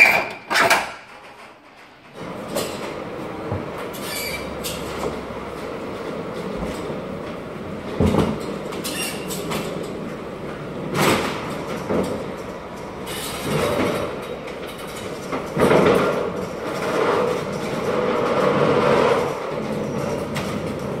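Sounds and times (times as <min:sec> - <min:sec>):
pallet jack wheels rumbling and rattling: 0:00.0 - 0:21.0
wheels clattering on steel plate: 0:00.0 - 0:21.0.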